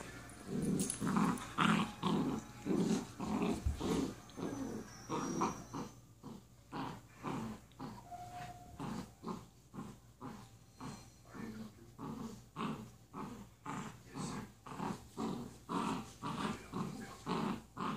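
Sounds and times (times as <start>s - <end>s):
dogs play-growling: 0.0s - 17.9s.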